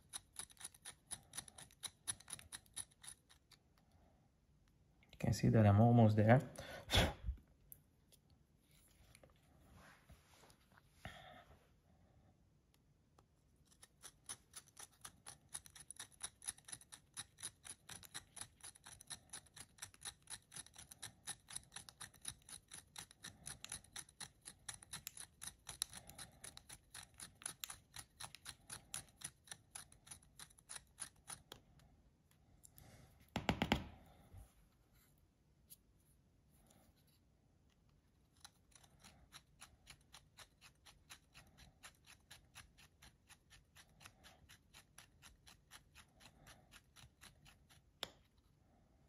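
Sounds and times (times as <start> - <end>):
work piece knock: 33.3 - 33.9.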